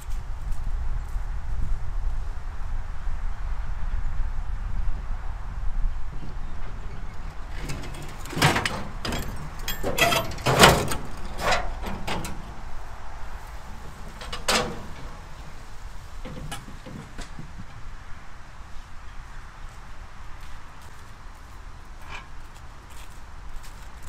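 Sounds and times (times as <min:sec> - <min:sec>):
metal knocks and clunks: 0:06.6 - 0:12.6, 0:13.7 - 0:15.6, 0:16.2 - 0:17.8.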